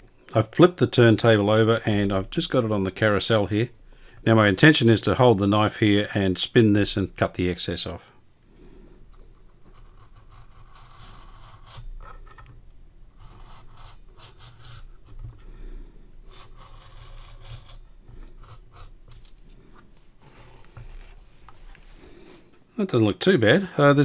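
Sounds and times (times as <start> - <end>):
knife scraping through felt: 9.4 - 12.2, 13.1 - 15.2, 16.3 - 21.4.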